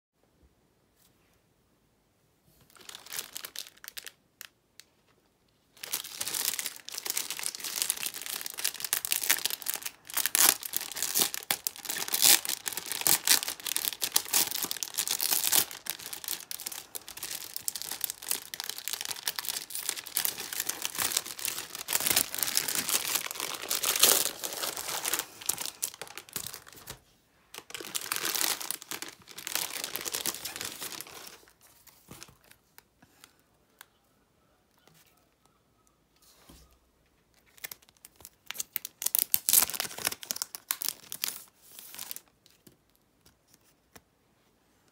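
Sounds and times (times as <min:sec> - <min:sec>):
plastic wrapping crinkling and tearing: 0:02.7 - 0:04.9, 0:05.7 - 0:32.8, 0:37.3 - 0:43.7.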